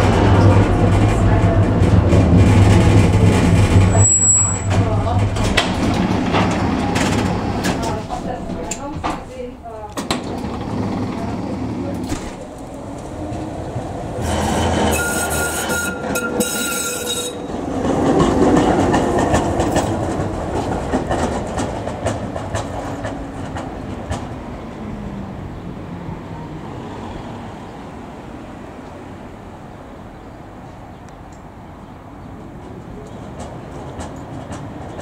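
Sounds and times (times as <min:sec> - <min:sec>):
tram wheel squeal: 0:00.0 - 0:08.9, 0:10.2 - 0:23.5
tram wheels rumbling over rails: 0:00.0 - 0:35.0.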